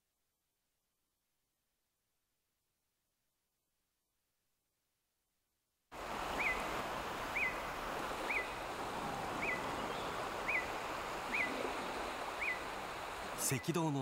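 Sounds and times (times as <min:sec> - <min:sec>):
steady rainforest hiss: 0:06.0 - 0:14.0.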